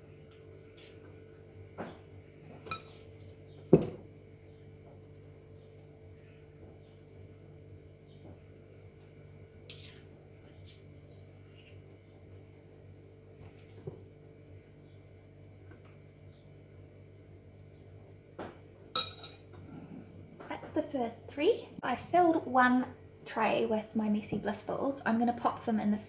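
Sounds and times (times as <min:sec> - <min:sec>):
low room hum: 0:00.0 - 0:26.0
spoon clinking on glass dish: 0:19.0 - 0:19.4.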